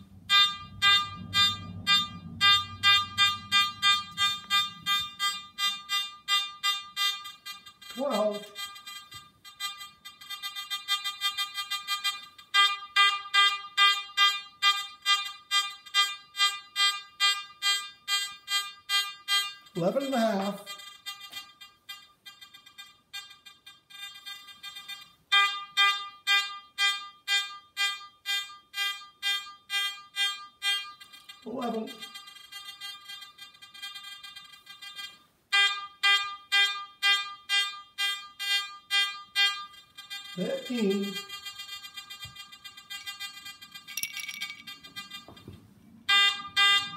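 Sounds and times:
metal detector beeping: 0:00.3 - 0:12.8, 0:37.1 - 0:45.2
metal detector loud beeps: 0:00.3 - 0:45.2
metal detector faint steady tone: 0:43.8 - 0:44.8.

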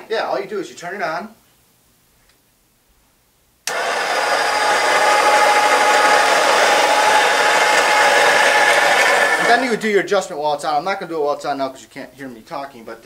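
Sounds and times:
coffee grinder grinding beans: 0:03.7 - 0:09.8
grinder motor whine: 0:03.7 - 0:09.8.

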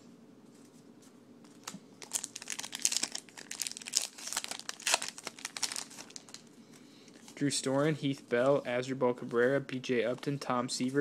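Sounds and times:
card pack wrapper tearing: 0:02.0 - 0:06.5.

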